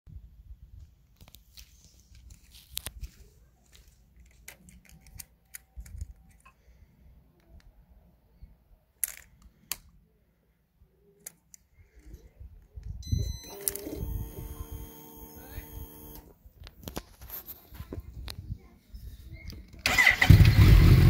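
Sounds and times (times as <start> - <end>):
faint short beeps: 13.0 - 16.3.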